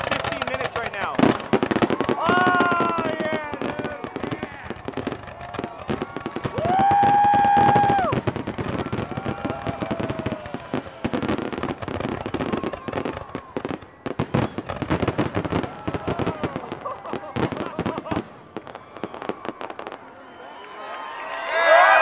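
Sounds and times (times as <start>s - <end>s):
fireworks bursting: 0.0s - 20.1s
spectators yelling: 0.0s - 22.0s
loud whoop: 2.0s - 4.6s, 5.3s - 11.5s, 12.3s - 13.8s, 15.4s - 22.0s.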